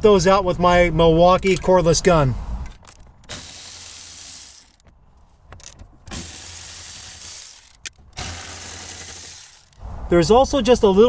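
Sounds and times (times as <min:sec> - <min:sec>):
cordless ratchet spinning bolts: 0:02.8 - 0:04.8, 0:05.6 - 0:09.8.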